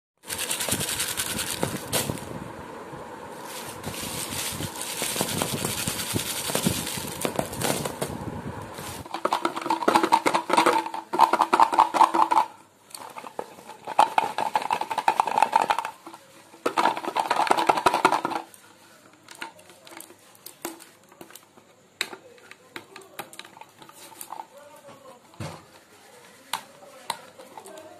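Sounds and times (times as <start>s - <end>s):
plastic tub scraping: 0.2s - 2.4s, 3.3s - 18.6s
foil wrappers crinkling: 3.4s - 8.0s.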